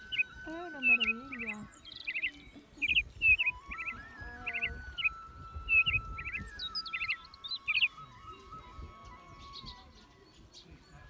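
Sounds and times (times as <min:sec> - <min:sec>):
slow background music: 0:00.0 - 0:11.0
small birds chirping: 0:00.0 - 0:11.0.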